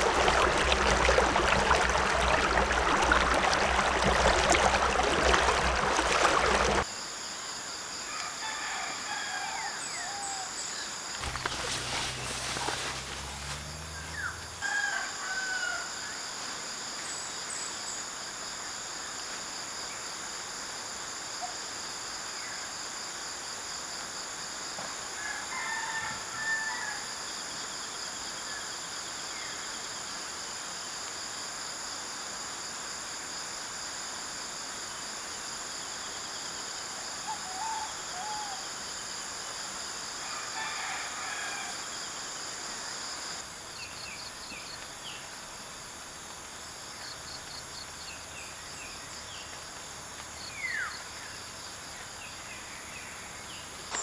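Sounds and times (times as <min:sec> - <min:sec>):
high-pitched insect chorus: 0:06.8 - 0:54.0
distant roosters crowing: 0:13.9 - 0:16.0, 0:25.2 - 0:27.1, 0:40.2 - 0:42.0.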